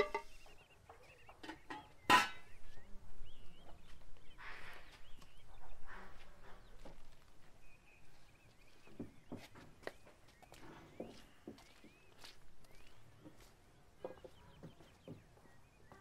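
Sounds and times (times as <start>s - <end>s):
small birds chirping: 0.0s - 16.0s
cookware scraping and shuffling: 1.4s - 2.6s.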